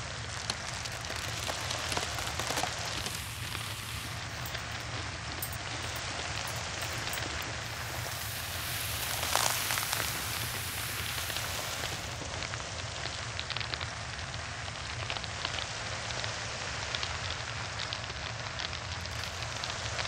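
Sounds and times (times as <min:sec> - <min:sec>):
cheese crackling under knife: 0:00.0 - 0:12.2, 0:19.0 - 0:20.0
small clicks: 0:00.5 - 0:12.0.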